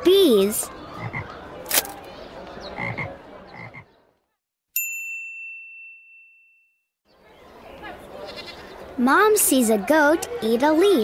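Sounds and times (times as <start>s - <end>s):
toad croaking: 2.8s - 3.9s
bell ding: 4.8s - 6.8s.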